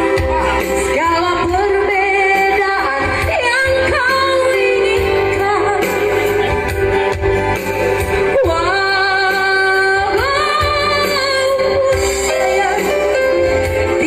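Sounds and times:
amplified instrumental backing: 0.0 - 14.0
woman singing into a microphone: 0.0 - 14.0.

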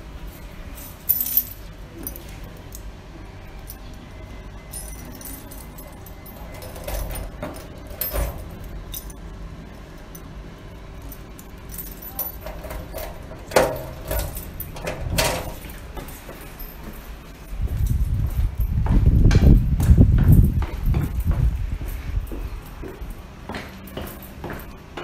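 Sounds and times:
keys jangling: 0.4 - 2.8, 4.6 - 9.2, 11.0 - 24.8
key turning in metal lock: 5.4 - 9.1, 12.0 - 16.1.

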